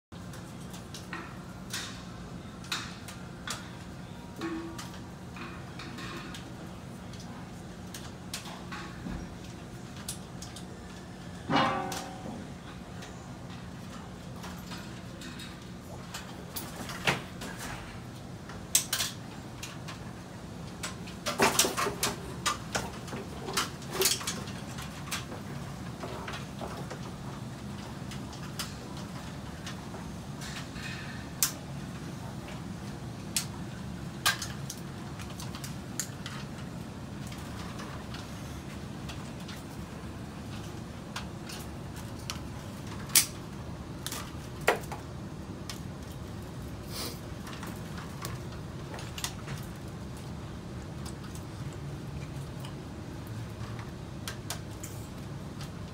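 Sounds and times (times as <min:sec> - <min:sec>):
cables clicking and tapping: 0:00.2 - 0:55.9
cable clicks and snaps: 0:18.7 - 0:20.0, 0:40.5 - 0:45.0.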